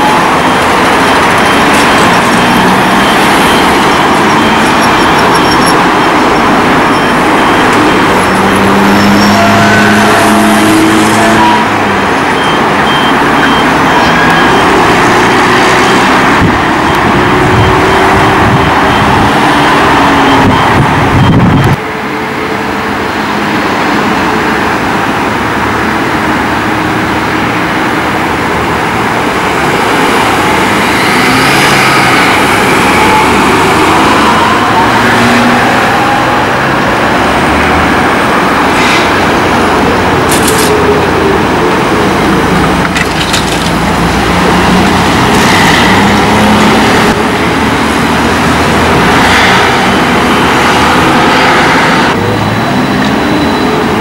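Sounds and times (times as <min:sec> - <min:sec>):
street traffic passing: 0:00.0 - 0:54.0.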